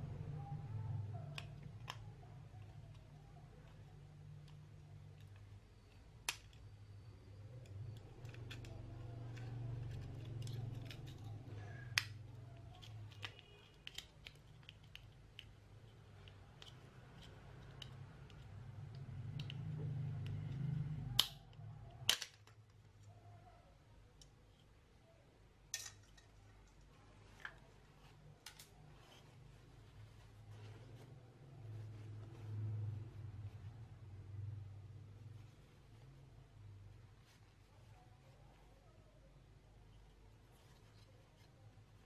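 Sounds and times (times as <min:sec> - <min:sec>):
plastic clicks and snaps: 0:01.2 - 0:03.8, 0:06.2 - 0:06.7, 0:07.6 - 0:20.5, 0:21.1 - 0:23.0.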